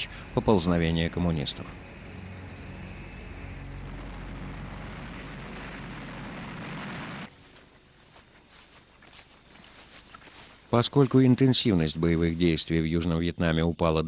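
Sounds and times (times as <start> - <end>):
jet engine roar: 0.2 - 7.3.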